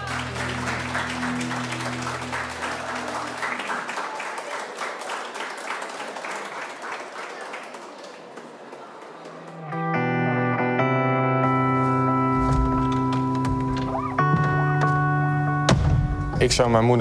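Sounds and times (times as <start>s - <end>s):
people applauding: 0.0s - 10.0s
guitar music: 9.5s - 16.5s
guitar chord ringing: 9.6s - 16.4s.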